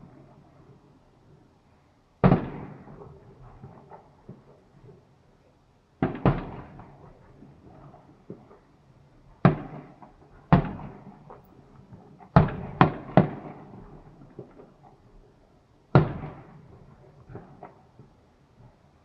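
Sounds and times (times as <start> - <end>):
fireworks bangs echoing: 2.2 - 5.0, 6.0 - 15.2, 15.9 - 18.2.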